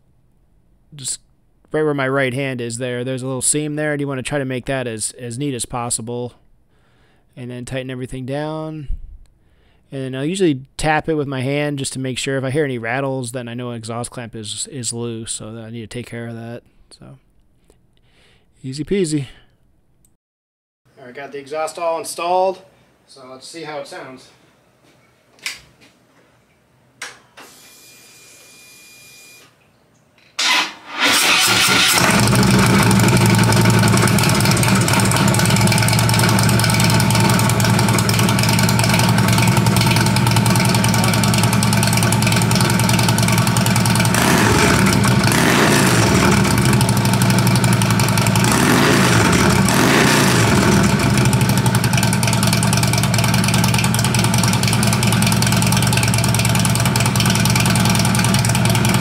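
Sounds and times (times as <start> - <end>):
electric starter cranking: 30.4 - 59.0
motorcycle throttle revving: 30.4 - 59.0
motorcycle engine idling: 32.0 - 59.0.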